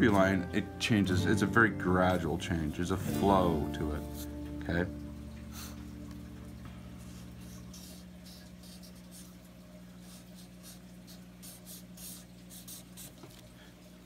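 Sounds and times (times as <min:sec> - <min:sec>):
marker scratching on paper: 0:07.1 - 0:09.4, 0:10.0 - 0:13.4.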